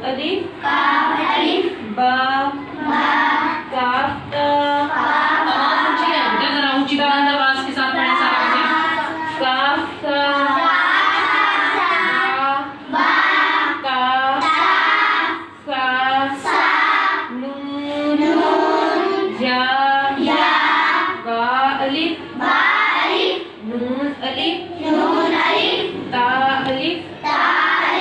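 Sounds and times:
girls chanting in unison: 0.6 - 1.9, 2.8 - 3.8, 10.4 - 17.4, 20.0 - 21.3, 22.3 - 23.6, 24.7 - 26.2, 27.2 - 28.0.

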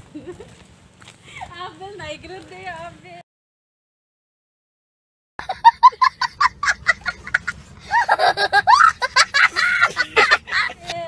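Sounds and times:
young child laughing: 5.4 - 11.0.

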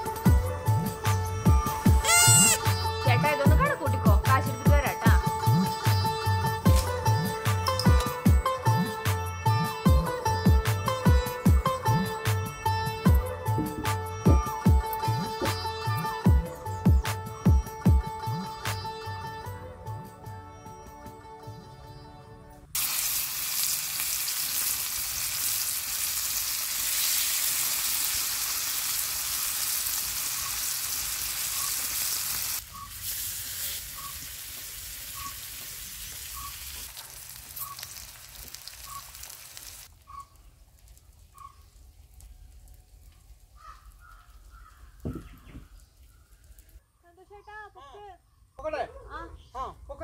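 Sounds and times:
food sizzling in hot oil: 22.8 - 40.1.

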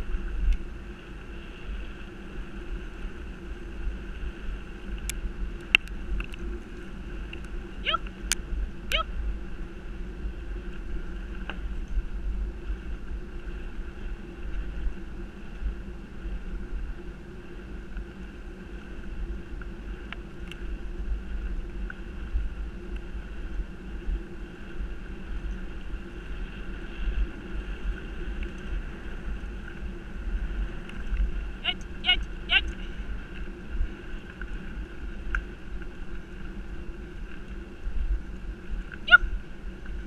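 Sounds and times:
bicycle rolling on dirt trail: 0.0 - 40.0
wind buffeting microphone: 0.0 - 40.0
faint clicks: 4.9 - 6.5, 19.6 - 20.6, 35.2 - 36.0.

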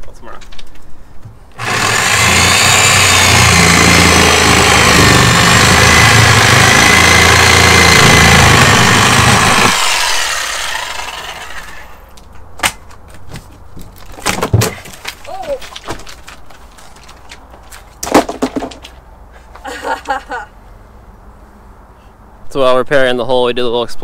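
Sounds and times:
power saw cutting with high whine: 1.6 - 12.0.

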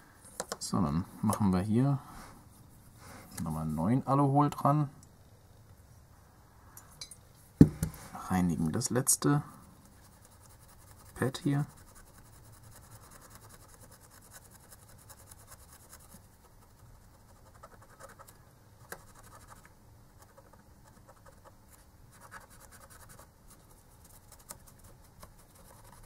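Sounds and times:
swab scratching on circuit board: 9.9 - 21.6, 22.2 - 26.0.

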